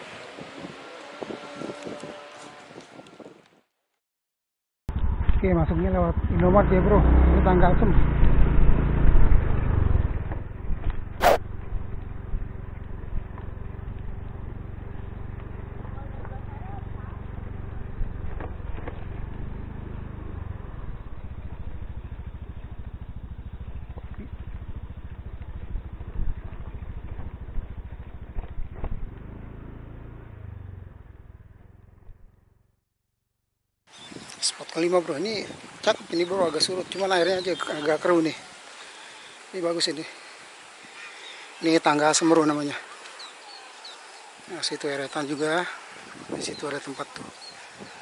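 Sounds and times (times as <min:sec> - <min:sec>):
motorcycle engine running: 0:04.9 - 0:32.8
short sharp sound: 0:11.2 - 0:11.4.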